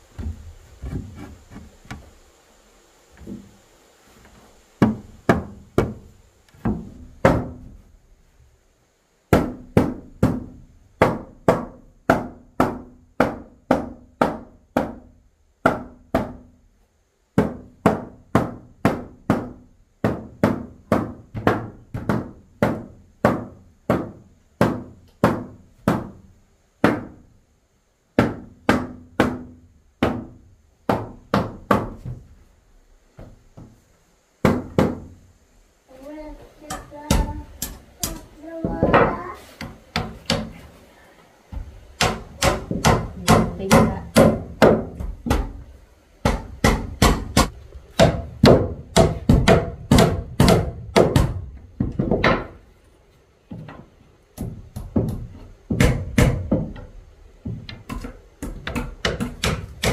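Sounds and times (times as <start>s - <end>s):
hammer striking wood: 4.8s - 6.0s, 6.6s - 7.8s, 9.3s - 16.5s, 17.4s - 26.2s, 26.8s - 27.2s, 28.2s - 32.2s, 34.4s - 35.2s, 36.7s - 40.6s, 41.5s - 45.6s, 46.2s - 52.6s, 54.4s - 59.9s.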